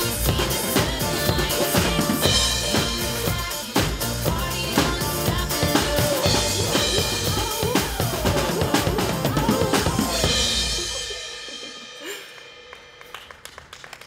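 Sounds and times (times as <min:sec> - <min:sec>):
pop backing track: 0:00.0 - 0:12.2
drum kit playing: 0:00.0 - 0:13.2.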